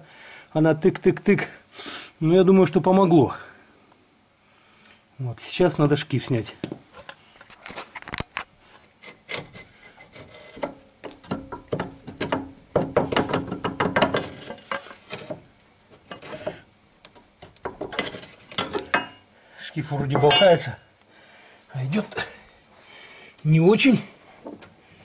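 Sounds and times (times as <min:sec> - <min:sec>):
pry bar knocking and scraping metal: 0:09.0 - 0:19.2, 0:20.0 - 0:20.7.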